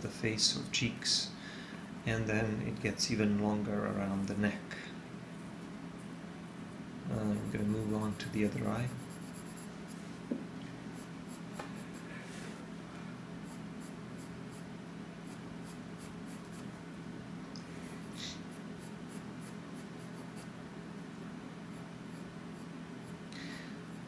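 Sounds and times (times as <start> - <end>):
pencil scratching on paper: 7.2 - 9.7, 13.4 - 16.7.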